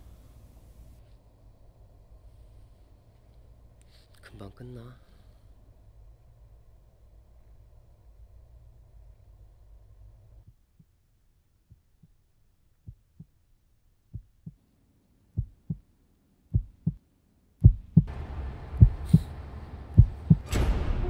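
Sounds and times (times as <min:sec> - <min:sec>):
heartbeat thumps: 0:12.8 - 0:13.3, 0:14.1 - 0:14.6, 0:15.4 - 0:15.8, 0:16.5 - 0:17.0, 0:17.6 - 0:18.1, 0:18.7 - 0:19.3, 0:19.9 - 0:20.5.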